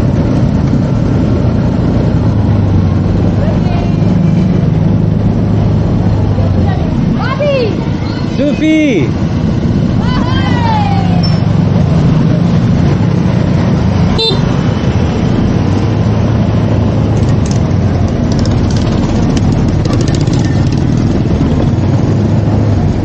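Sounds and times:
wind and road noise: 0.0 - 23.0
motorcycle engine running: 9.0 - 23.0
short horn beep: 14.2 - 14.6.

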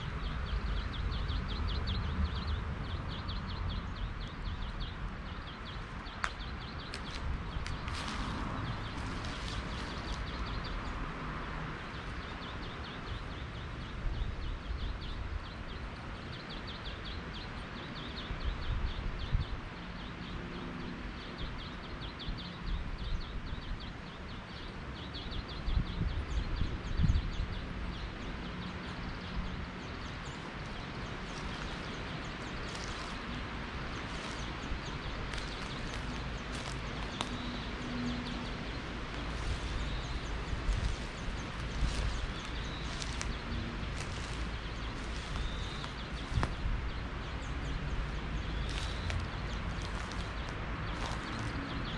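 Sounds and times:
footsteps on ground: 5.6 - 11.2, 29.8 - 51.9.

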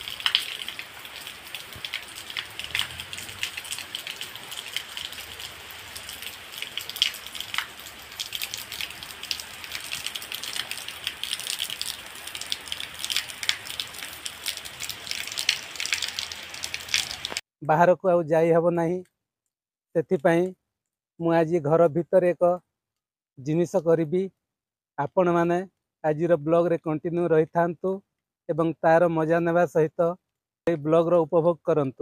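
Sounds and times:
heavy rain: 0.0 - 17.4.

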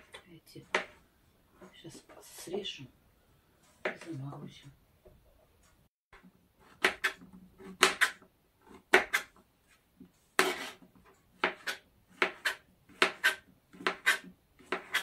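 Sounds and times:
knife scraping cut: 10.4 - 10.8, 11.4 - 15.0.

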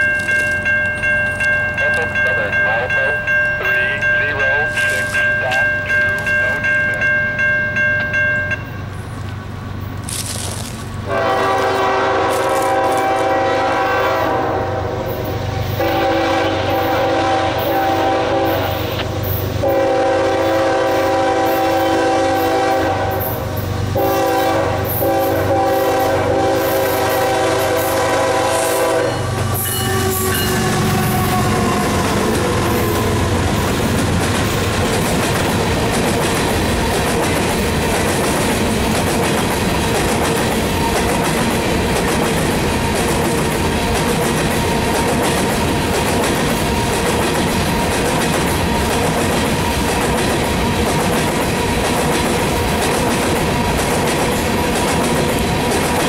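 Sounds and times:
crossing bell ringing: 0.0 - 9.1, 26.5 - 34.8
locomotive engine rumble: 0.1 - 55.9
train air horn blasts: 11.1 - 33.9
wheels clacking over rail joints: 31.6 - 56.0.

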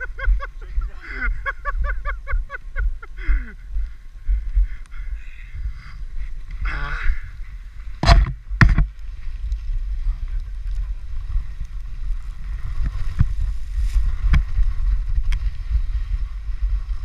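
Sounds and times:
wind buffeting microphone: 0.0 - 17.0
sled scraping on snow: 9.1 - 17.0.

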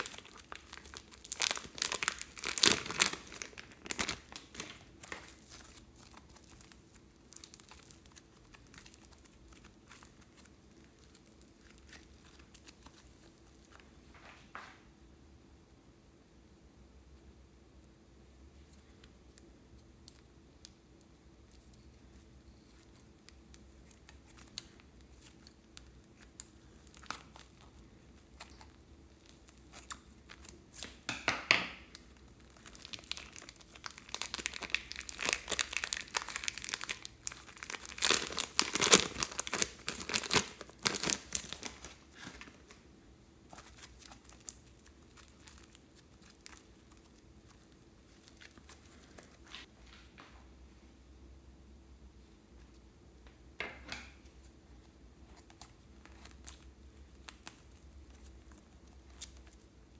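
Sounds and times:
plastic bag crinkling and tearing: 0.0 - 13.8, 22.7 - 31.1, 31.9 - 42.8, 43.5 - 49.6.

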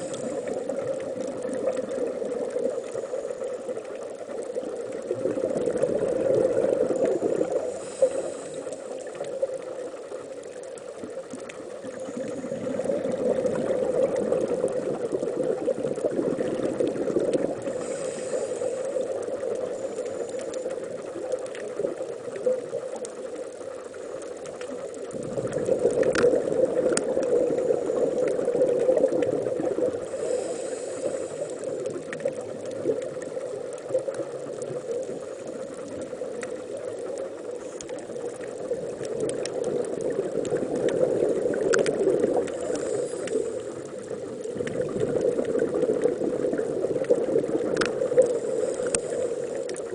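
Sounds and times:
faint clicks: 0.0 - 49.9
underwater rushing rumble: 4.6 - 8.5, 25.0 - 33.4.

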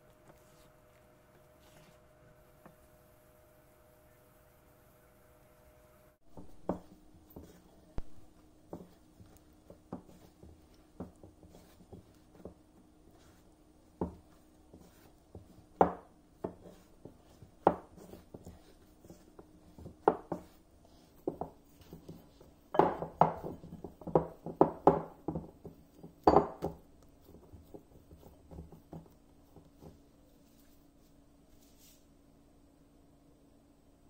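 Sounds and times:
dough thudding and slapping in bowl: 6.2 - 30.0.

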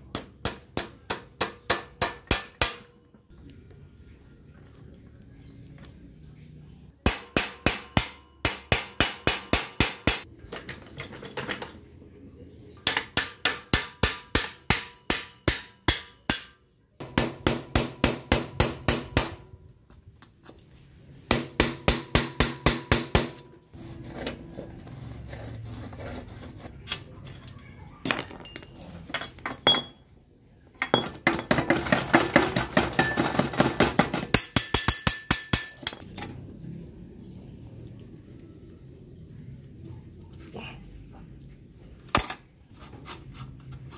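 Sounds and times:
hammer tapping on metal: 0.0 - 3.0.

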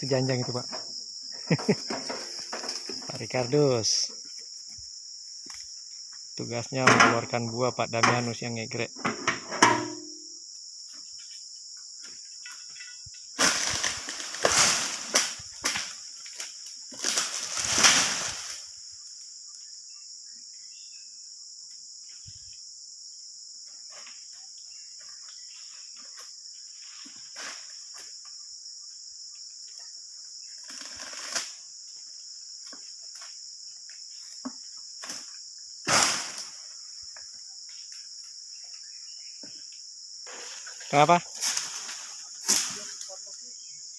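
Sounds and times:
high-pitched insect drone: 0.0 - 43.9
loud rustling crashes: 17.1 - 18.6.

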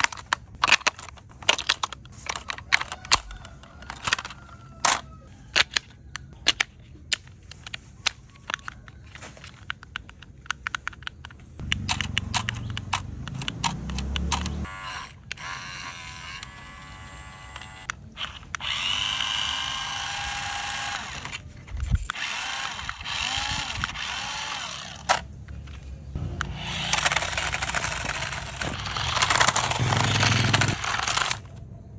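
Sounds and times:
plastic clicks and snaps: 3.9 - 14.6
small electric motor whirring: 11.7 - 25.3, 26.2 - 31.5.

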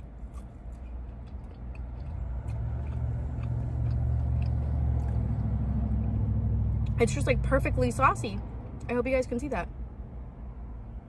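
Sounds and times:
vehicle engine rumbling: 0.0 - 11.0
faint chewing clicks: 0.3 - 5.4.

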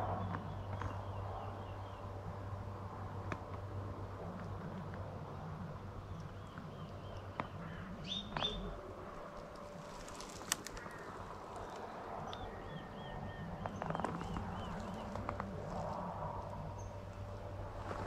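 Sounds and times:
small bird chirping: 6.0 - 8.8
faint clicks: 9.2 - 12.5.

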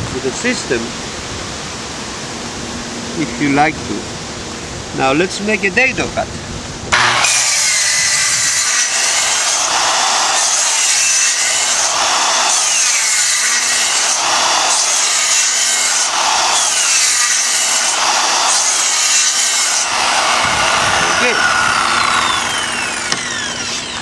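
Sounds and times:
circular saw cutting plywood: 6.9 - 24.0.

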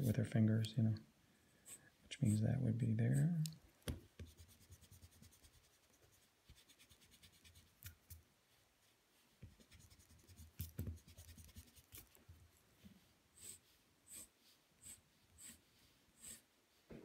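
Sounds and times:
pencil scratching on paper: 4.2 - 7.7, 9.6 - 12.2, 13.4 - 16.5.

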